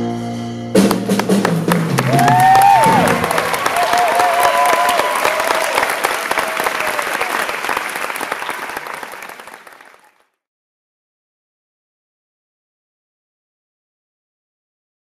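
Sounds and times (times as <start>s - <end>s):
audience clapping and cheering: 0.8s - 10.4s
voices whooping: 2.1s - 8.8s.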